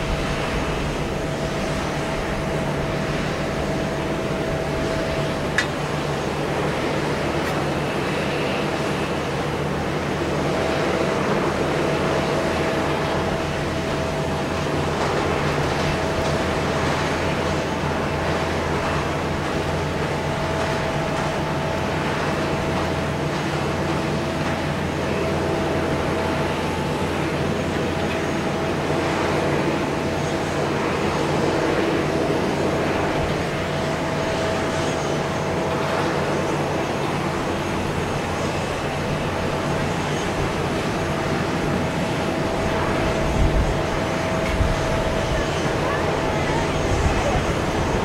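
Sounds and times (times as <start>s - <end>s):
low machinery hum: 0.0s - 48.0s
mid-pitched whine: 0.0s - 48.0s.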